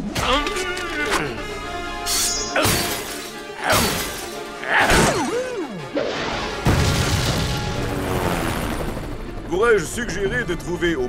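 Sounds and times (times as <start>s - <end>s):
background music: 0.0s - 11.0s
explosion rumbling: 6.4s - 8.7s.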